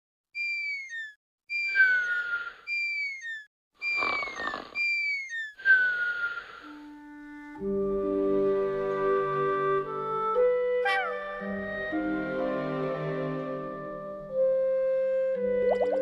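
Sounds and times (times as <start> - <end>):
short falling whistles: 0.4 - 6.8
cartoon raspy snores: 3.8 - 4.8.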